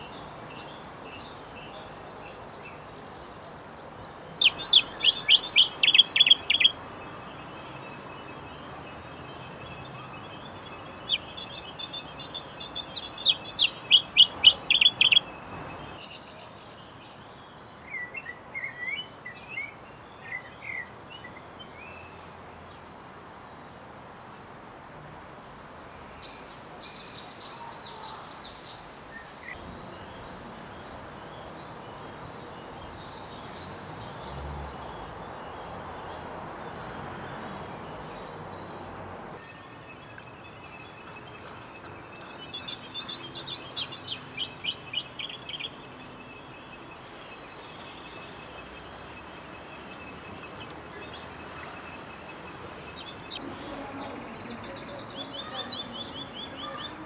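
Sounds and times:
high repeated chirps: 0:00.0 - 0:06.8
birdsong from loudspeakers: 0:00.0 - 0:24.0, 0:39.5 - 0:57.0.

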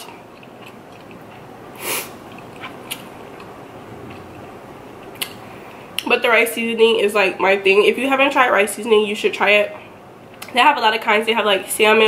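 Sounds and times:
woman sniffing stuffed nose: 0:01.8 - 0:02.2.

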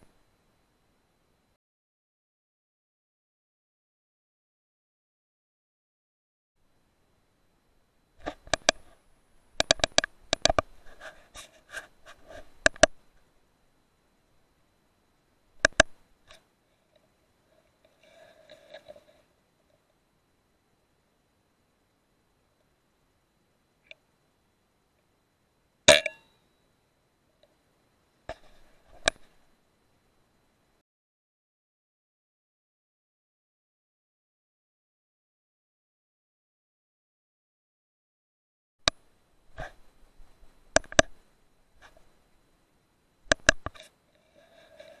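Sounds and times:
small clicks: 0:08.2 - 0:09.0, 0:09.6 - 0:10.7, 0:11.4 - 0:13.0, 0:15.6 - 0:17.1, 0:40.7 - 0:41.2, 0:43.3 - 0:43.9.

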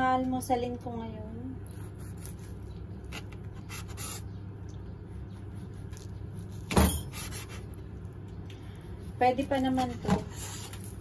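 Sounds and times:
low steady hum: 0:00.0 - 0:11.0
knife cutting bread: 0:01.6 - 0:04.3, 0:05.4 - 0:07.8.

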